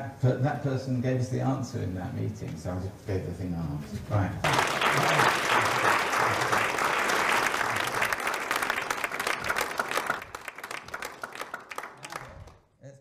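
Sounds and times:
audience applauding: 0:04.4 - 0:12.6.

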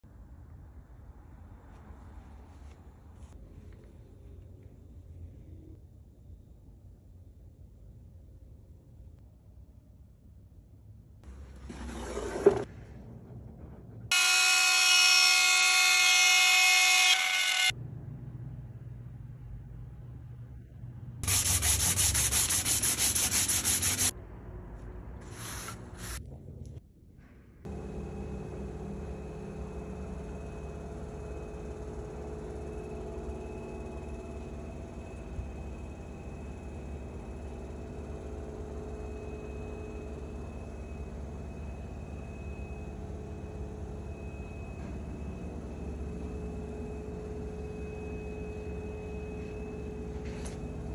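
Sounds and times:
mechanical hum with low rumble: 0:00.0 - 0:50.9
sandpaper rubbing on wood: 0:21.2 - 0:24.1
faint high whine: 0:27.2 - 0:50.9.

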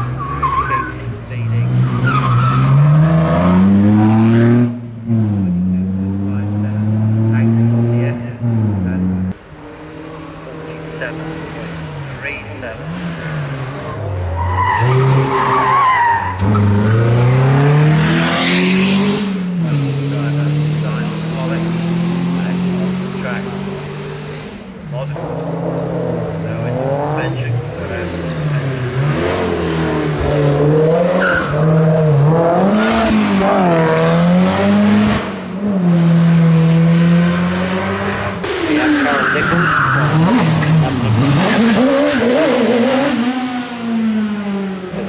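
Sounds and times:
car engine accelerating hard: 0:00.0 - 0:09.4, 0:10.0 - 0:45.0
tyres squealing: 0:10.2 - 0:17.5, 0:38.7 - 0:42.8.

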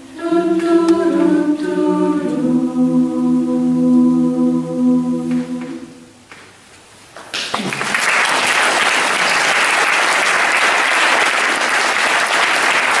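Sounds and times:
audience applause: 0:07.3 - 0:13.0.

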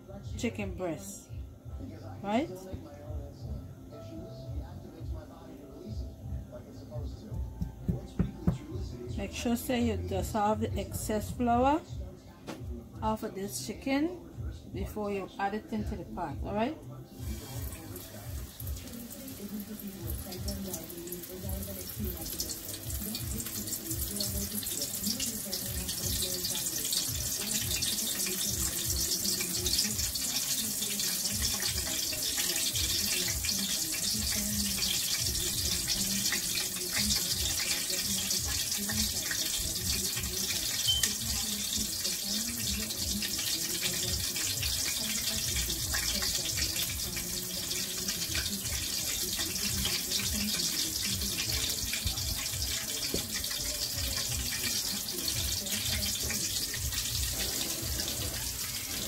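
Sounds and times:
chicken frying in hot oil: 0:17.0 - 0:59.0.

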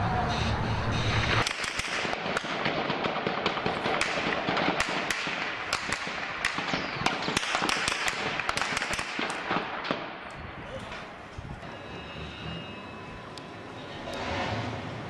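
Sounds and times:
steady noisy background: 0:00.0 - 0:15.0
small-arms gunfire: 0:01.2 - 0:10.3.

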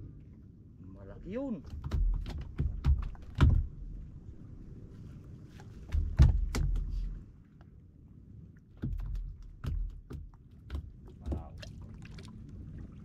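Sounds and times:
sharp knocks and clatters: 0:01.7 - 0:03.7, 0:05.9 - 0:07.0, 0:08.8 - 0:11.5.

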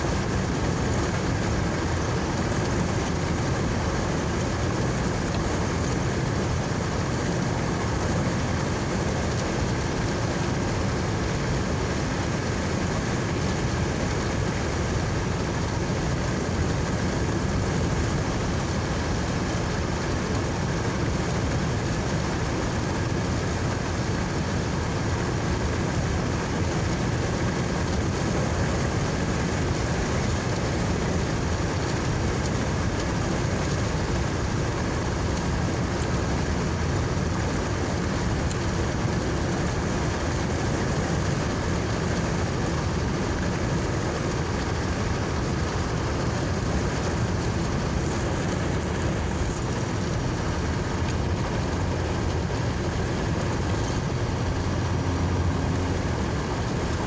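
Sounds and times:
car engine and road noise: 0:45.9 - 0:57.0.

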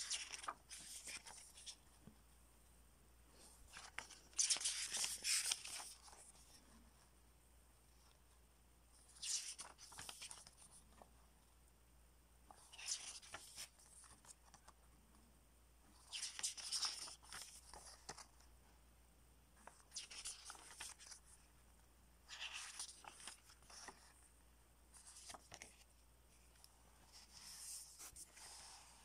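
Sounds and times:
paper pages turning: 0:00.0 - 0:02.1, 0:03.7 - 0:06.6, 0:09.0 - 0:11.1, 0:12.5 - 0:14.8, 0:15.9 - 0:18.4, 0:19.6 - 0:21.4, 0:22.2 - 0:24.3, 0:24.9 - 0:29.0.

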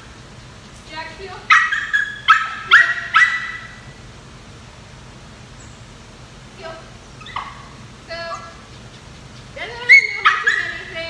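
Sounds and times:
dog yelping: 0:01.5 - 0:03.8, 0:07.1 - 0:11.0
dog whining: 0:07.1 - 0:11.0.

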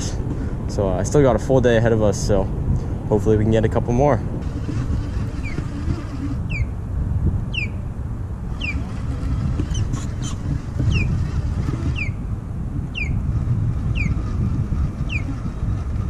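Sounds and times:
wind rumbling on microphone: 0:00.0 - 0:16.0
bird whistled call: 0:07.5 - 0:07.8, 0:08.6 - 0:08.8.

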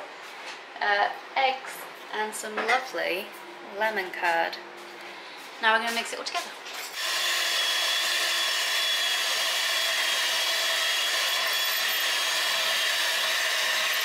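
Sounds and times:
electric hand mixer whining: 0:07.0 - 0:14.0.

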